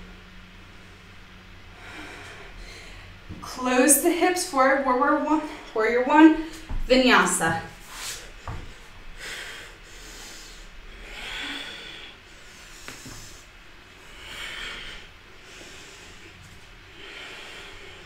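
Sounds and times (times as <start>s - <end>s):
woman breathing hissing breaths: 7.8s - 18.0s.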